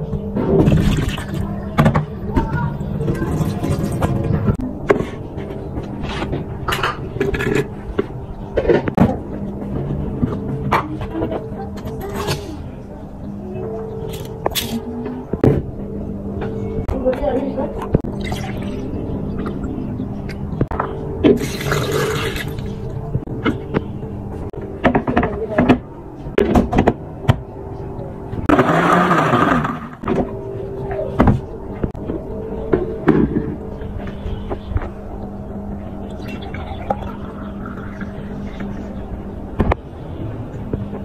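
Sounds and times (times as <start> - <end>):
electric blender whirring: 28.5 - 30.0.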